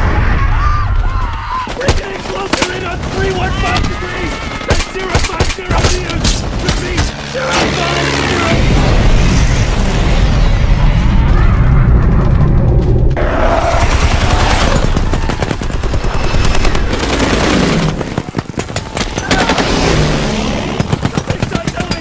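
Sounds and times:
low explosion rumble: 8.5s - 15.3s
automatic machine-gun fire: 13.6s - 22.0s.

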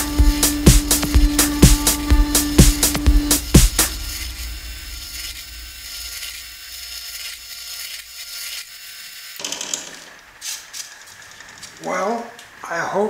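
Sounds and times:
drill press bit boring wood: 0.0s - 12.5s.

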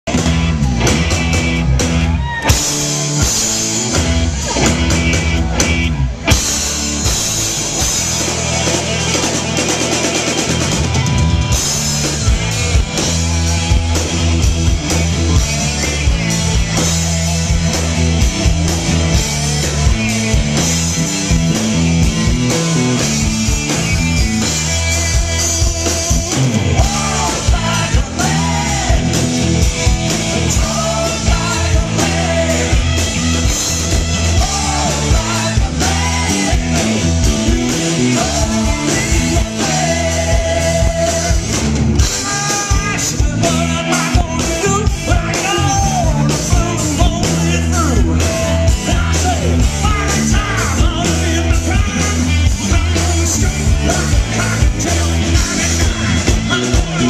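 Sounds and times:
bass guitar: 0.0s - 57.0s
drum kit: 0.0s - 57.0s
electric guitar: 0.0s - 57.0s
keyboard: 0.0s - 57.0s
man singing lead: 24.8s - 57.0s.

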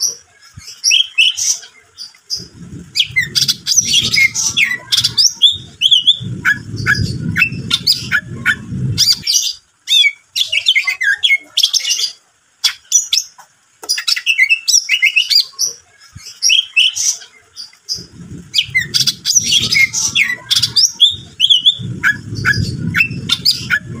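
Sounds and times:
bird singing chirps and trills: 0.0s - 24.0s
low rumbling noise: 2.1s - 9.8s, 17.7s - 24.0s.

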